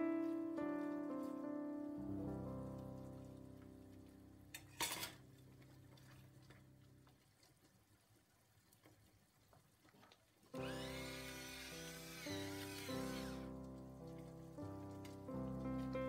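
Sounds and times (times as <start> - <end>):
background music: 0.0 - 5.1
metal utensil clattering on pan: 4.6 - 5.2.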